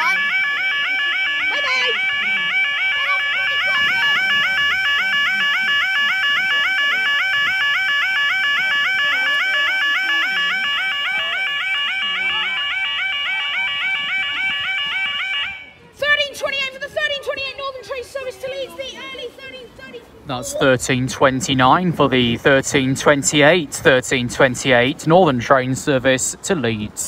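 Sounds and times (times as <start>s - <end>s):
level crossing alarm warble: 0.0s - 15.8s, 20.5s - 25.6s.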